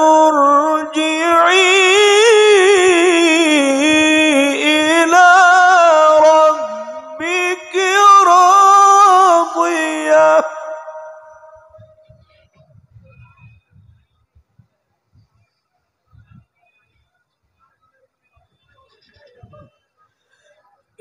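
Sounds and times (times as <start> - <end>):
man reciting melodically: 0.0 - 11.8.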